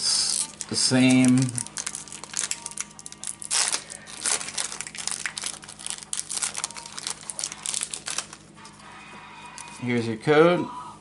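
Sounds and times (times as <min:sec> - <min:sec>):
foil wrapper crinkling: 0:00.0 - 0:08.5.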